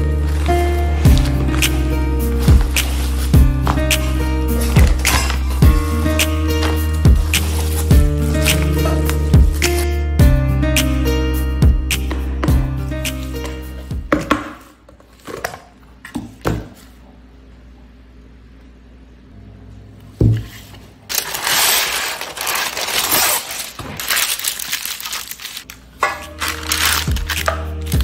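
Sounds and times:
parchment paper crinkling: 0:00.0 - 0:09.8, 0:20.6 - 0:28.0.

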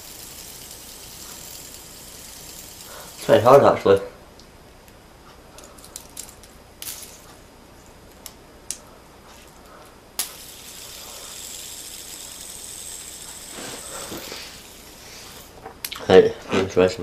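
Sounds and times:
fidget spinner clicks: 0:00.0 - 0:03.6, 0:05.6 - 0:07.3, 0:10.2 - 0:15.4
fidget spinner whirring: 0:00.0 - 0:04.0, 0:05.6 - 0:07.5, 0:08.1 - 0:15.6.

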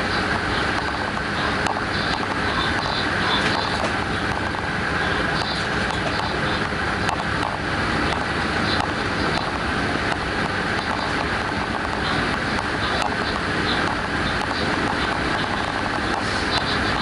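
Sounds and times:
train rumble and hiss: 0:00.0 - 0:17.0.

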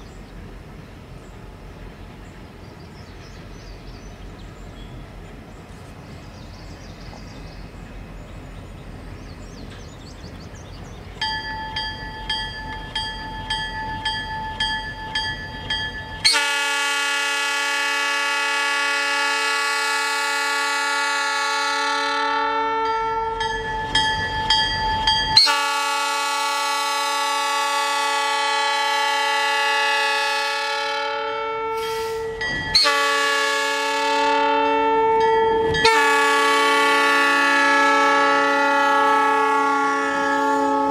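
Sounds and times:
locomotive low rumble: 0:00.0 - 0:16.3
locomotive bell ringing: 0:11.2 - 0:16.5, 0:22.7 - 0:25.8, 0:32.3 - 0:33.1, 0:35.1 - 0:36.3
train air horn blasts: 0:16.2 - 0:23.4, 0:25.4 - 0:40.9.

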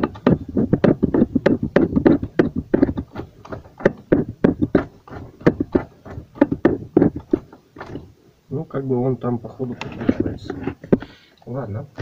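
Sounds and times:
tools clicking and knocking: 0:00.0 - 0:08.1.

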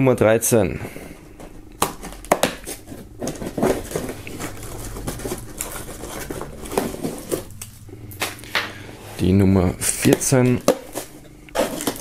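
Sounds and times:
cardboard door torn open: 0:11.6 - 0:12.0.

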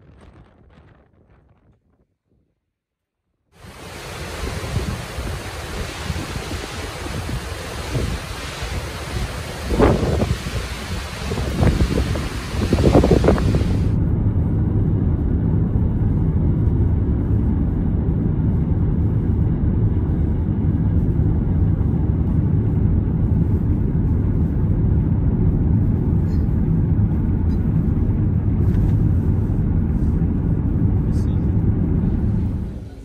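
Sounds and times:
wind: 0:00.0 - 0:02.8, 0:03.4 - 0:33.0
roar of falling water: 0:03.6 - 0:14.0
car rumbling from inside: 0:11.0 - 0:33.0.

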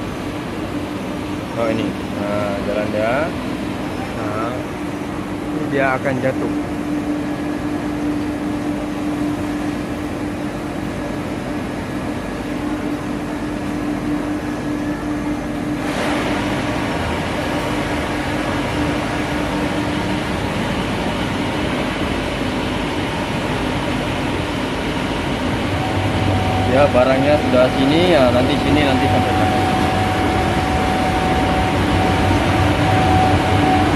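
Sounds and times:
industrial washer and conveyor hum: 0:00.0 - 0:33.9
steady tone: 0:00.0 - 0:33.9
loud hissing rushing noise: 0:23.8 - 0:33.9.

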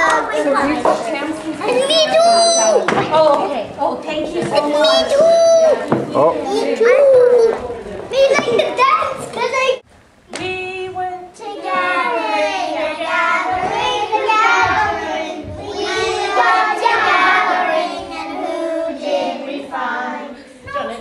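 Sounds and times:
woman singing: 0:10.4 - 0:14.0
children singing: 0:11.3 - 0:20.9.

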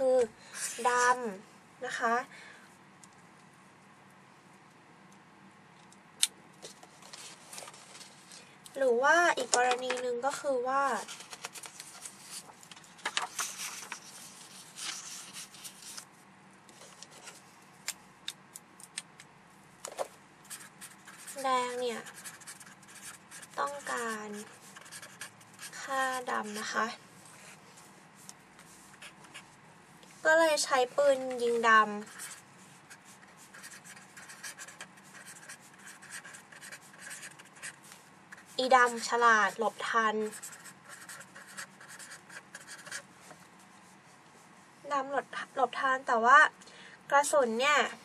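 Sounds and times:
paper rustling: 0:06.6 - 0:08.4, 0:11.0 - 0:16.1
felt-tip pen scratching on paper: 0:20.5 - 0:26.9, 0:31.1 - 0:43.1.

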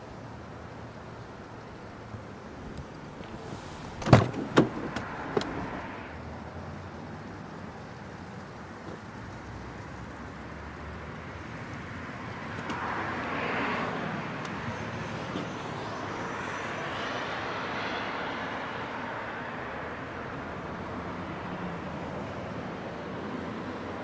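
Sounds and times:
low traffic rumble: 0:00.0 - 0:24.0
vehicles passing: 0:00.0 - 0:24.0.

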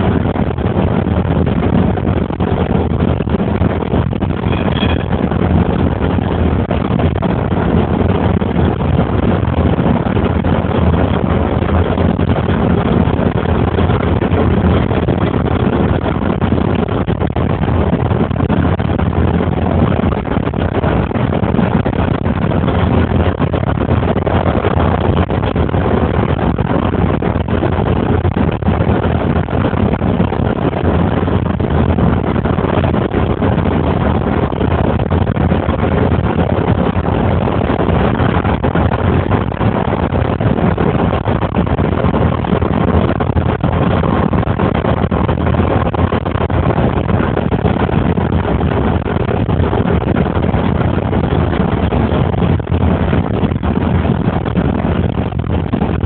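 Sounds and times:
car engine rumble: 0:00.0 - 0:56.0.

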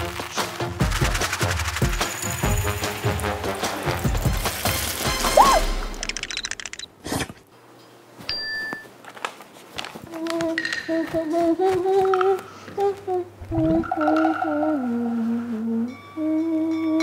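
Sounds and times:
short ding: 0:08.3 - 0:08.9
wavering hummed tune: 0:10.1 - 0:17.0.

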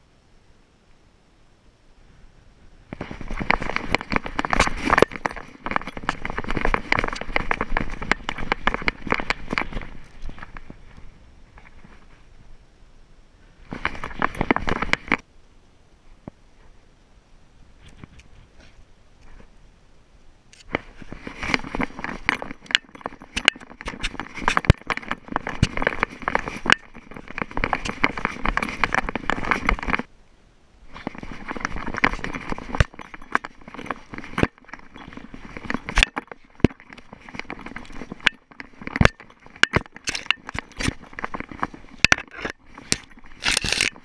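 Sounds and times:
crunching and rattling: 0:03.0 - 0:10.8, 0:13.7 - 0:15.2, 0:20.6 - 0:30.1, 0:31.0 - 0:44.0
dog trotting over rocks and grass: 0:03.0 - 0:11.0, 0:13.7 - 0:15.2, 0:20.7 - 0:30.1, 0:30.9 - 0:44.0.

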